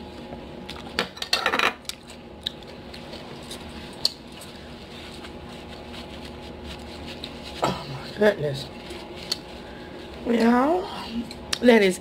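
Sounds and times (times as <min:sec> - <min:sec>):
low steady hum: 0:00.0 - 0:12.0
mouth and hand eating sounds: 0:01.8 - 0:08.1, 0:08.7 - 0:10.2.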